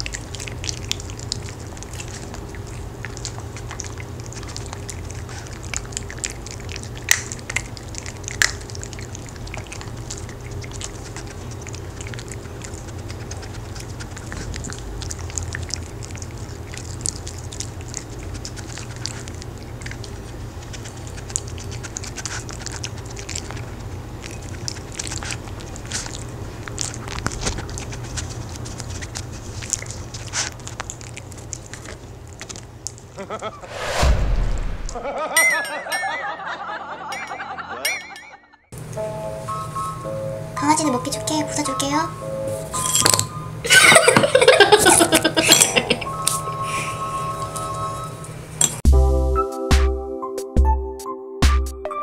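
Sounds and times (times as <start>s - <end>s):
dogs crunching hard cookies: 0.0s - 33.4s, 42.7s - 46.5s.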